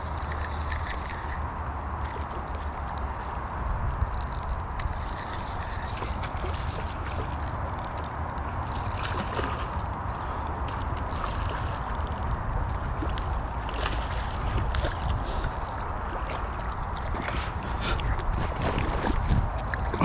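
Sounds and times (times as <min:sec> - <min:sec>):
wind rumble on microphone: 0:00.0 - 0:20.0
fish splashing in water: 0:04.3 - 0:20.0.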